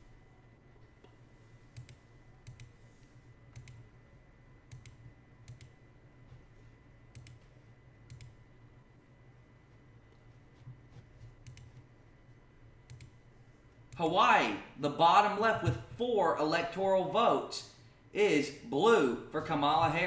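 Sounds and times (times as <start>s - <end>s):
faint electrical whine: 0.0s - 20.0s
computer mouse clicks: 1.0s - 2.8s, 3.5s - 3.9s, 4.7s - 5.8s, 7.1s - 8.4s, 11.3s - 11.9s, 12.8s - 13.2s.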